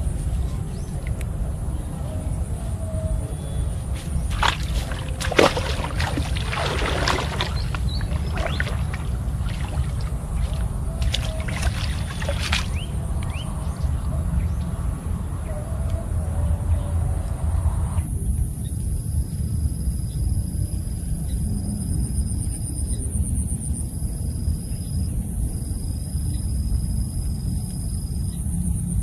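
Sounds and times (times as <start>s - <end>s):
steady low rumble: 0.0s - 29.0s
water sloshing and splashing: 3.9s - 13.5s.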